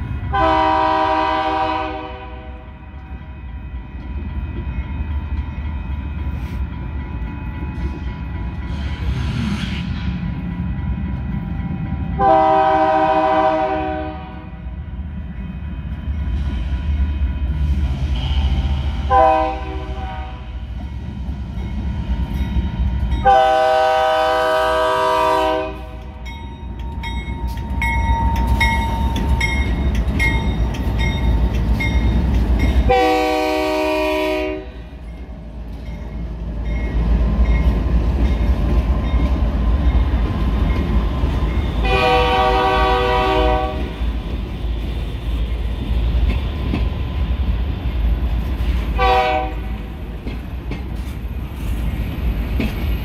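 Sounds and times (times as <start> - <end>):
freight train rumbling past: 0.0 - 53.0
train air horn blasts: 0.3 - 2.9, 12.2 - 14.6, 18.1 - 20.7, 23.2 - 26.2, 32.9 - 35.0, 41.8 - 44.0, 49.0 - 49.8
crossing bell dinging: 2.4 - 9.0, 20.4 - 33.6, 34.6 - 42.6.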